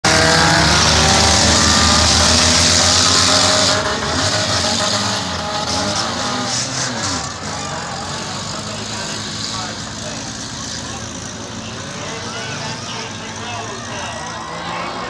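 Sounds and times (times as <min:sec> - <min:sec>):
race car engines passing: 0:00.0 - 0:15.0.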